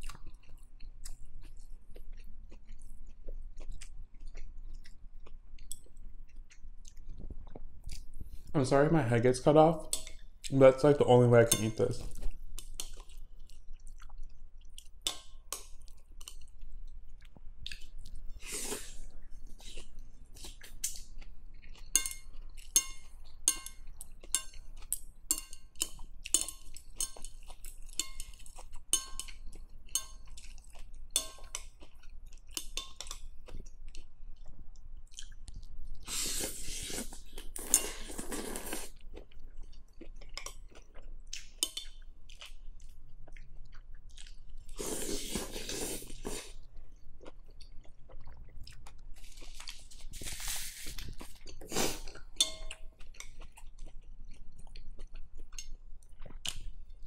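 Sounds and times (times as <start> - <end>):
chewing and mouth clicks: 0.0 - 8.5, 12.1 - 36.1, 36.9 - 57.0
chopsticks clinking on glass bowl: 11.4 - 12.2, 21.9 - 30.4, 31.2 - 31.8, 52.4 - 52.9
slurping noodles: 18.4 - 19.8, 36.1 - 39.0, 44.8 - 46.6, 49.3 - 52.1.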